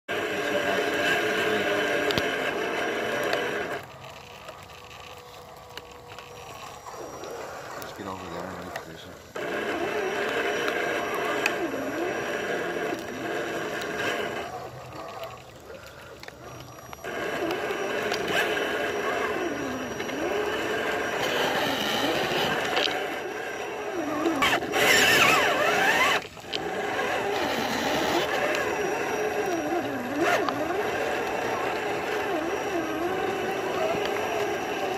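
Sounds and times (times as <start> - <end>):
toy truck electric motors whining: 0.1 - 34.9.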